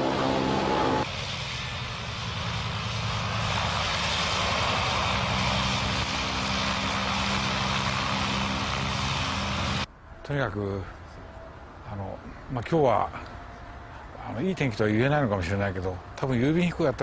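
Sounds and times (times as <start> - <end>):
propeller plane engine running: 0.0 - 9.9.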